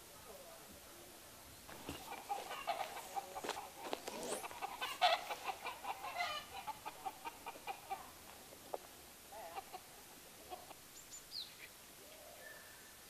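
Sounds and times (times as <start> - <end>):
chickens clucking: 1.7 - 10.9.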